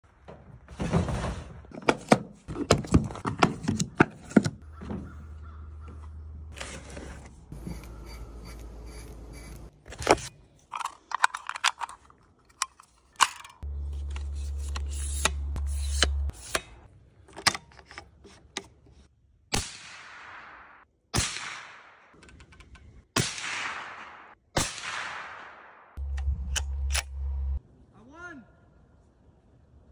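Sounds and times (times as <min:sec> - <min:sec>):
suppressed rifle shots: 0:23.2 - 0:25.8
deep bass tone: 0:26.0 - 0:27.6.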